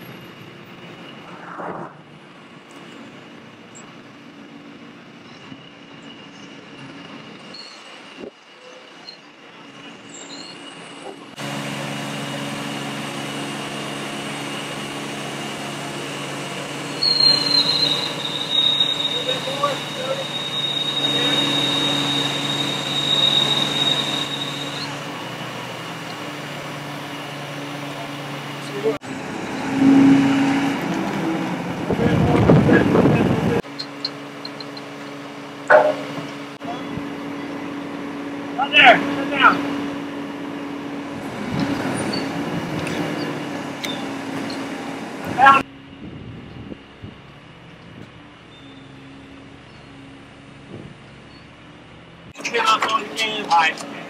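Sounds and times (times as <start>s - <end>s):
diesel crane engine running: 2.0s - 54.0s
large engine running: 11.3s - 17.2s
loud high-pitched squeal: 16.5s - 25.1s, 29.4s - 30.8s.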